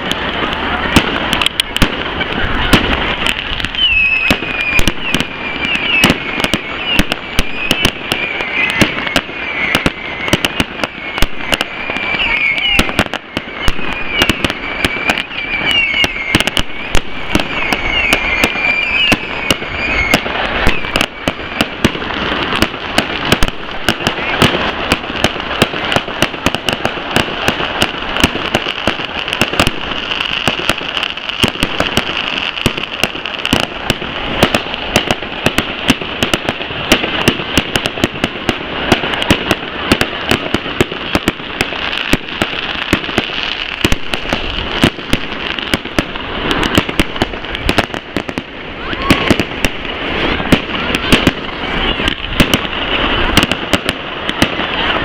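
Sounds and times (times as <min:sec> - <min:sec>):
fireworks bangs and crackles: 0:00.0 - 0:55.0.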